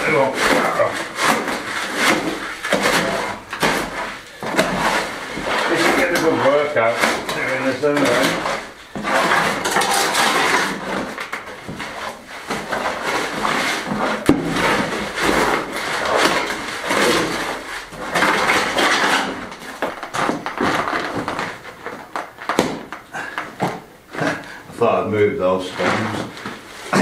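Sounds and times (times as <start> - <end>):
shovel scraping in wheelbarrow: 0.0 - 20.8.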